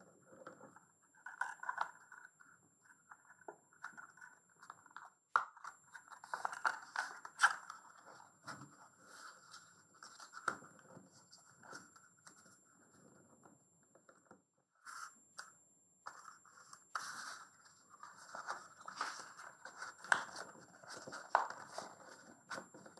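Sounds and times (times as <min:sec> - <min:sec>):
paper rustling and crackling: 0:05.6 - 0:12.4, 0:16.9 - 0:22.9.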